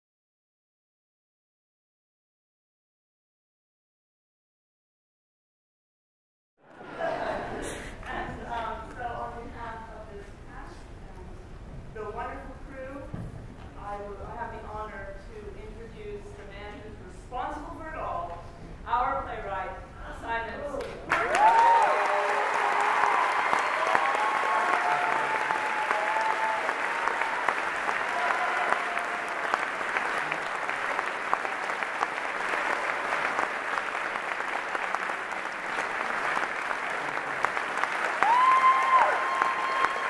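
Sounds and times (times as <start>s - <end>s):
audience applauding: 20.8s - 40.0s.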